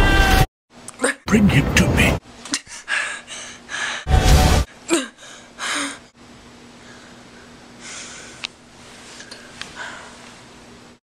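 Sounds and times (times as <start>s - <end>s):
steady low hum: 0.8s - 11.0s
person breathing sounds: 2.6s - 4.1s, 4.9s - 6.1s, 6.8s - 10.4s.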